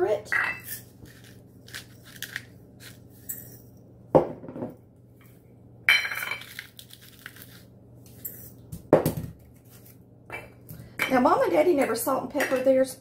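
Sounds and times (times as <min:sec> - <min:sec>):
pepper mill grinding: 0:00.6 - 0:03.6, 0:06.4 - 0:08.6.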